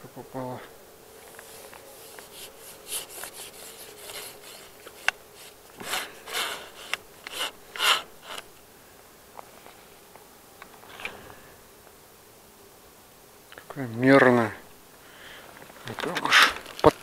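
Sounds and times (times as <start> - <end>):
rustling scrapes on fishing rod: 1.2 - 8.5.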